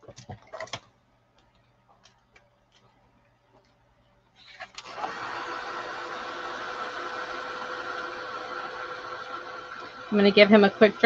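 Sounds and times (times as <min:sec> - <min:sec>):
heat tool fan blowing: 0:04.8 - 0:11.0.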